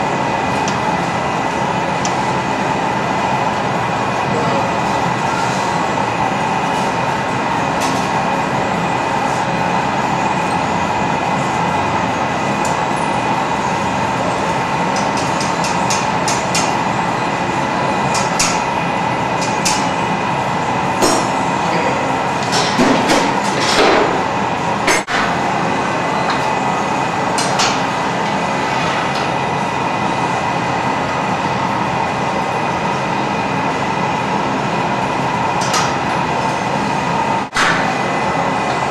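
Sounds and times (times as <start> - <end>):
gas furnace rushing: 0.0 - 38.9.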